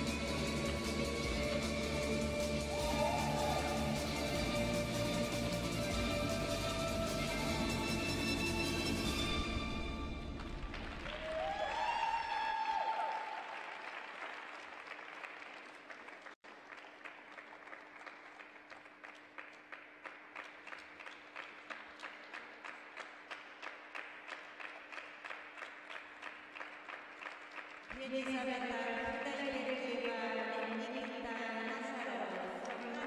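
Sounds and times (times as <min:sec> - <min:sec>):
audience applauding: 0:00.0 - 0:08.0, 0:10.2 - 0:28.3
rhythmic clapping in unison: 0:00.0 - 0:09.2, 0:13.5 - 0:33.0.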